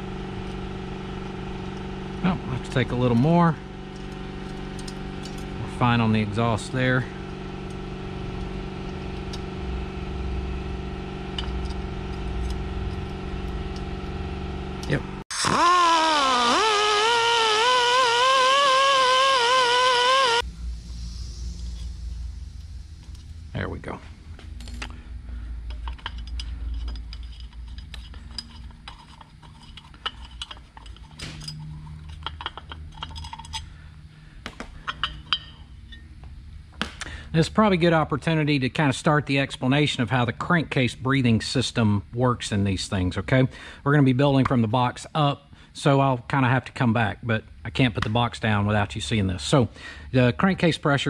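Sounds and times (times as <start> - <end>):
machine hum: 0.0 - 40.5
metal engine parts clicking: 2.6 - 5.6, 25.6 - 33.8, 34.5 - 36.0
low rumble: 20.4 - 28.7.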